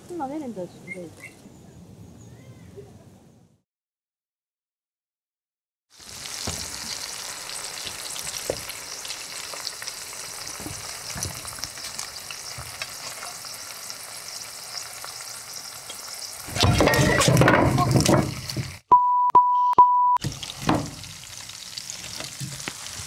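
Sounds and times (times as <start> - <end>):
shrimp sizzling in oil: 5.9 - 18.8, 20.2 - 23.0.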